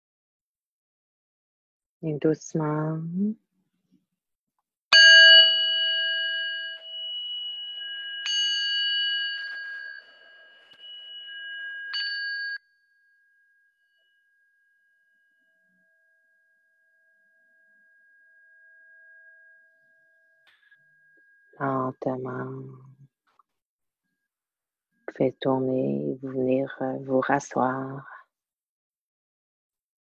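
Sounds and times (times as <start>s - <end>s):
singing bowl ringing: 4.9s - 22.8s.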